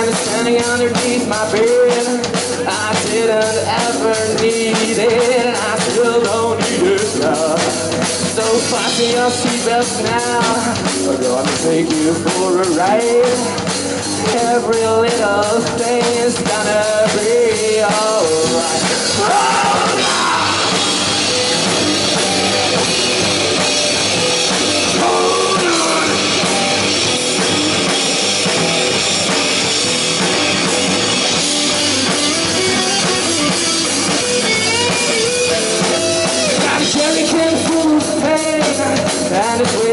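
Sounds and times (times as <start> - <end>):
person singing: 0.0 - 21.0, 24.9 - 26.8, 36.6 - 39.9
rock band playing: 0.0 - 39.9.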